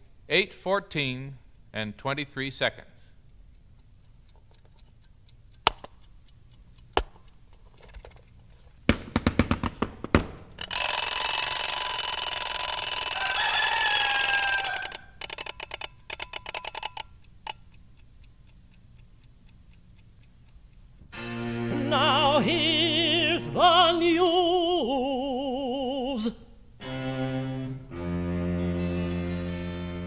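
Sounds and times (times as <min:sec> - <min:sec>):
mechanical clicks and clattering: 0:06.7 - 0:08.6, 0:14.8 - 0:18.1
alarm clock bell ringing: 0:10.7 - 0:13.2.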